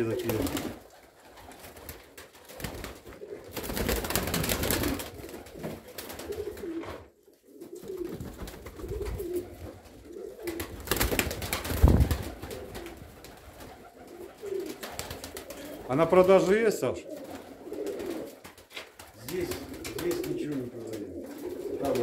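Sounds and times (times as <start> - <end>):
pigeons cooing: 0.0 - 1.8, 2.6 - 18.5, 19.2 - 22.0
wing-flapping: 0.0 - 7.0, 7.8 - 16.5, 17.1 - 22.0.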